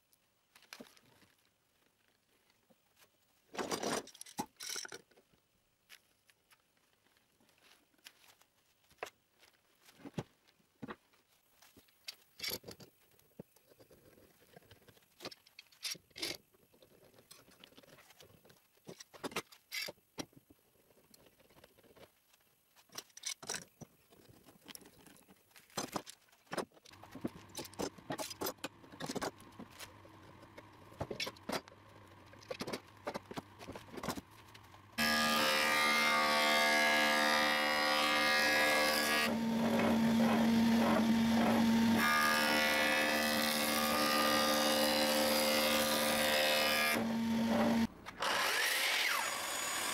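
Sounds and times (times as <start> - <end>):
woodworking machine running: 35.0 - 49.9.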